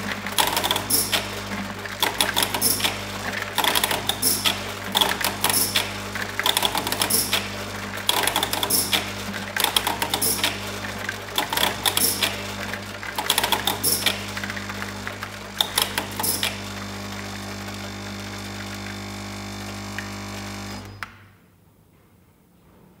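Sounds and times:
fast irregular clicking and rattling: 0.0 - 16.6.

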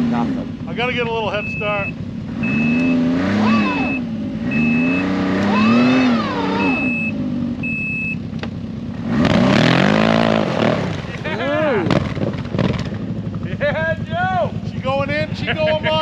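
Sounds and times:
snowmobile engine revving: 0.0 - 8.2, 8.9 - 16.0
reverse warning beeps: 1.2 - 8.3.

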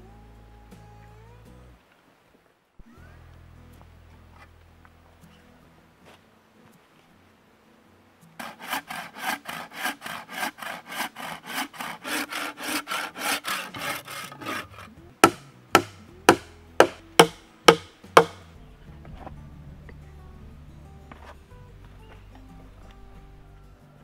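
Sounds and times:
hand saw cutting wood: 8.4 - 18.4
blows striking wooden peg: 8.4 - 18.5.

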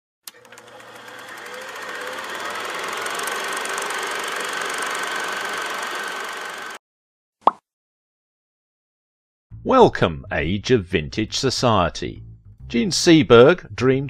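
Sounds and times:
projector clatter and whine: 0.3 - 6.8.

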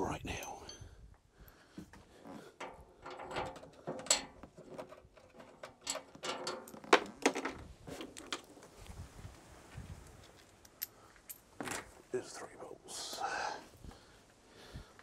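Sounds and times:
metal parts clicking and scraping: 2.5 - 8.5.

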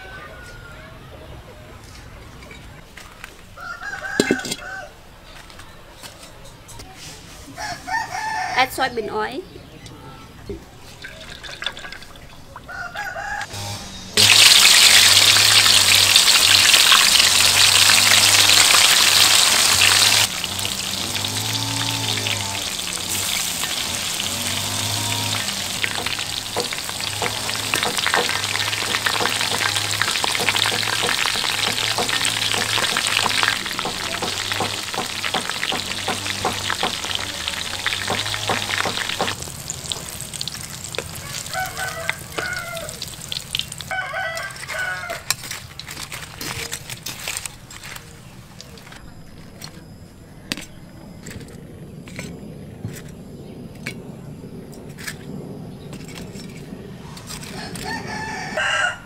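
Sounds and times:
deep-frying sizzle and crackle: 13.0 - 49.0, 52.0 - 59.0
oil pouring into a wok: 14.2 - 41.6.

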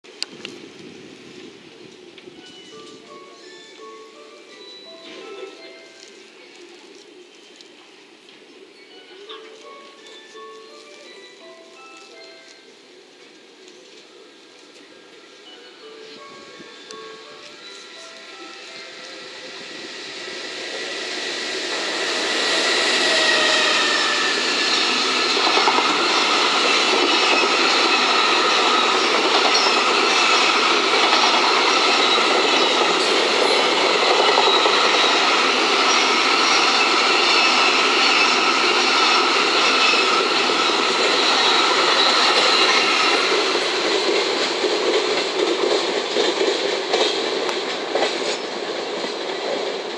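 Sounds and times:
freight train passing: 0.0 - 49.9
thin whine: 17.7 - 30.5.

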